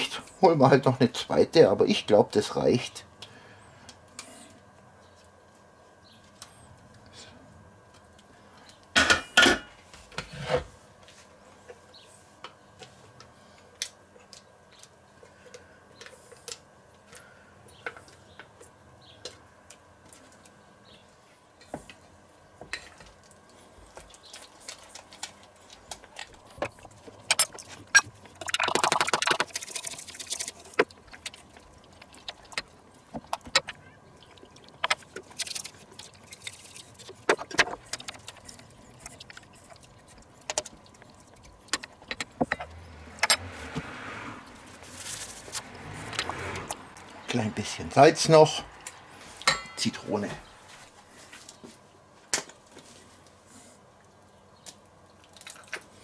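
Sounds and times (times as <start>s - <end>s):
brisk stirring in a bowl: 26.4s - 42.6s
utensils clanking against steel bowls: 49.5s - 49.9s.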